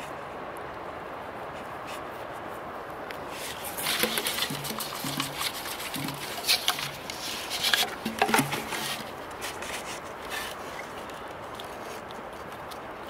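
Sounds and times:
handling clicks and rustles: 3.1s - 13.0s.

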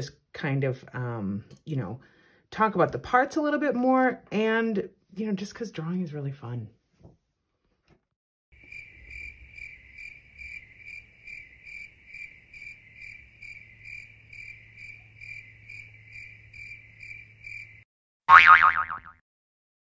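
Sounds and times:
insect chirping trill: 8.6s - 17.8s.

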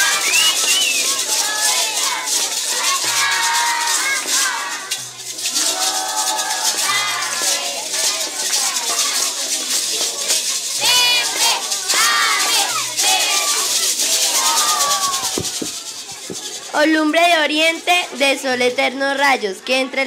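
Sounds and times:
children calling out: 0.0s - 8.0s, 8.6s - 16.8s
children shaking plastic maracas: 0.0s - 20.0s.

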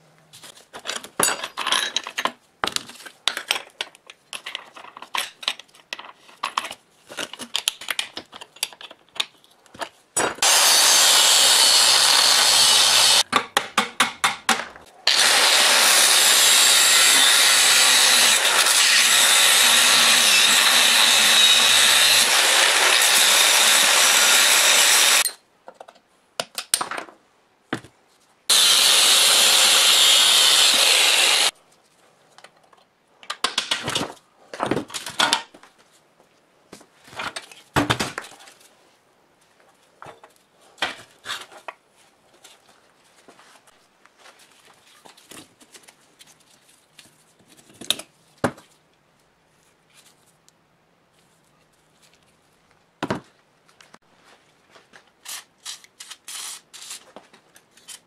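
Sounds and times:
angle grinder grinding steel: 10.4s - 13.2s, 15.1s - 25.3s, 28.5s - 31.5s.

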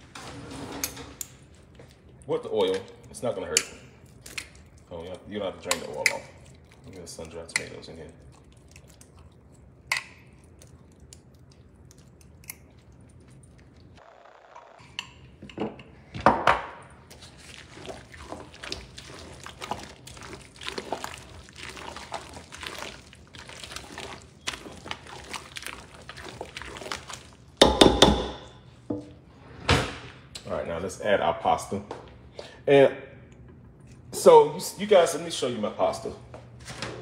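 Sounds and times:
spoon stirring in metal bowl: 0.7s - 13.6s, 17.0s - 29.2s
spoon knocking on bowl: 27.6s - 29.1s.

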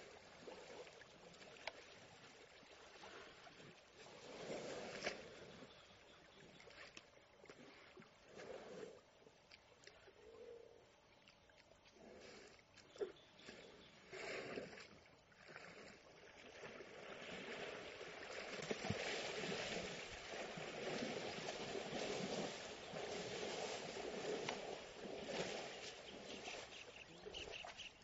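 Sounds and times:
water splashing: 0.0s - 5.7s, 11.5s - 28.0s.

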